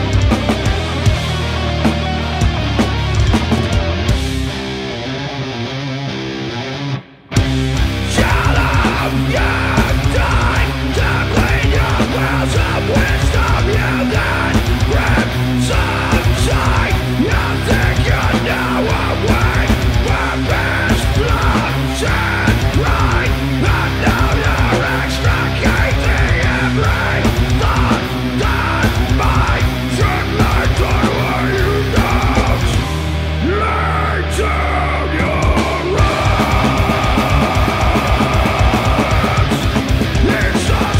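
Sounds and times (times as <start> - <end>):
drums with cymbal hits: 0.0 - 4.8, 7.4 - 33.5, 35.2 - 40.9
bass: 0.0 - 40.9
distorted electric guitars: 0.0 - 40.9.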